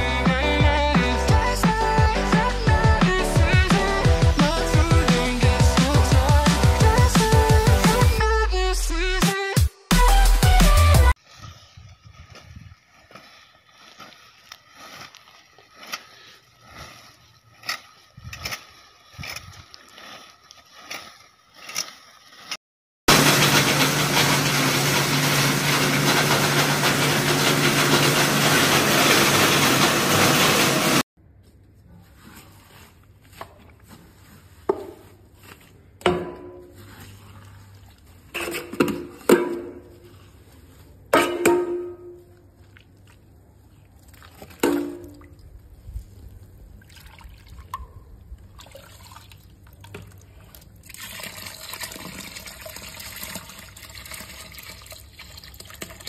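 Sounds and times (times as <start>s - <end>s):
electric corn sheller humming: 23.1s - 31.0s
liquid pouring: 46.8s - 56.0s.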